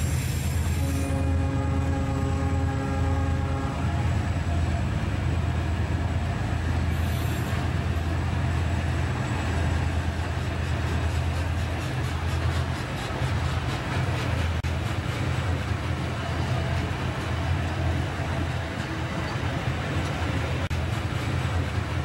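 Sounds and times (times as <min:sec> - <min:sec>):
train air horn blast: 0:00.0 - 0:04.3, 0:06.9 - 0:07.6
diesel locomotives rumbling: 0:00.0 - 0:22.0.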